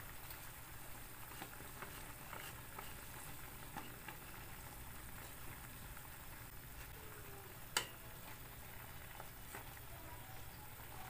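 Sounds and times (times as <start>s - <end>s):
food sizzling and bubbling in a pan: 0.0s - 11.0s
wooden spatula scraping a pan: 0.3s - 5.4s.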